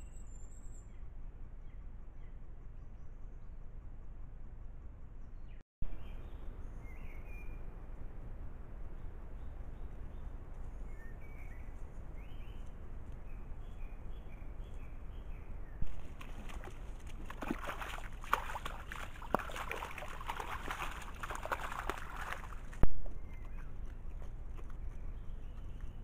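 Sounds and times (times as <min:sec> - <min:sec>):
small bird chirping: 0:00.0 - 0:03.5.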